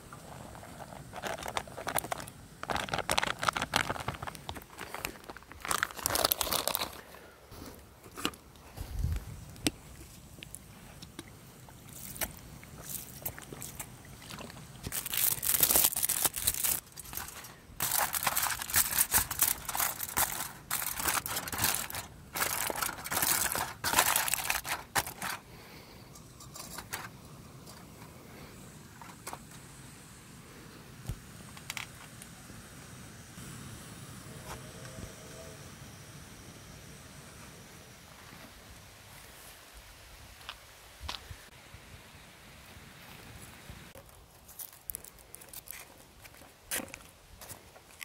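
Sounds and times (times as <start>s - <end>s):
aluminium foil crinkling: 0.3s - 7.2s, 11.7s - 25.4s, 44.0s - 48.0s.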